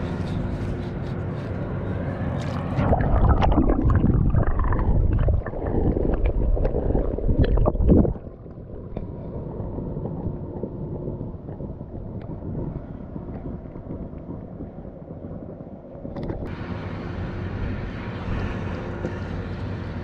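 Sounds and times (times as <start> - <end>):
water sloshing and splashing: 0.0 - 10.8
steady rushing water: 2.3 - 11.0.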